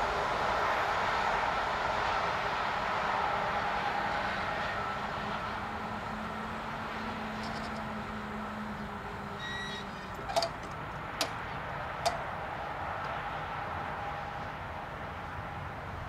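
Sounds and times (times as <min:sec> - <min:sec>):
barrier drive humming: 0:04.0 - 0:15.0.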